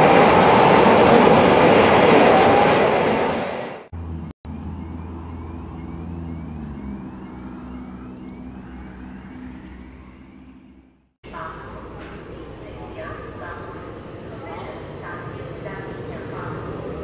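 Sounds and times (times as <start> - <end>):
freight train rumble: 0.0 - 17.0
low engine hum: 3.9 - 17.0.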